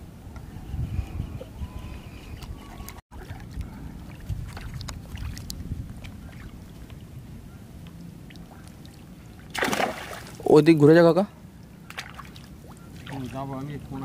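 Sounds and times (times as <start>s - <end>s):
water sloshing and lapping: 2.4s - 10.6s, 11.6s - 14.0s
small splashes: 3.1s - 6.6s, 8.2s - 10.5s, 11.9s - 13.5s.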